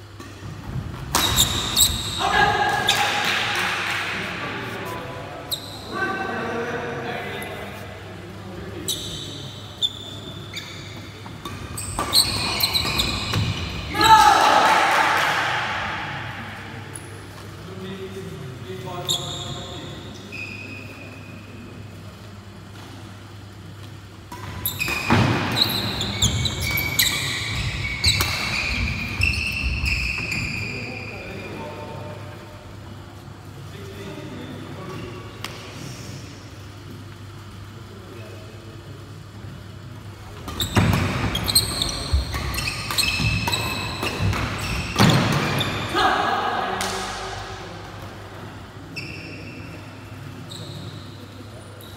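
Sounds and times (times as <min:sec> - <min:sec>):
sports shoes squeaking: 0:01.0 - 0:03.2, 0:04.8 - 0:06.0, 0:08.8 - 0:14.2, 0:18.9 - 0:21.4, 0:24.3 - 0:31.8, 0:40.4 - 0:45.9, 0:48.9 - 0:51.9
shoes squeaking on wooden floor: 0:09.8 - 0:13.8, 0:40.5 - 0:45.8.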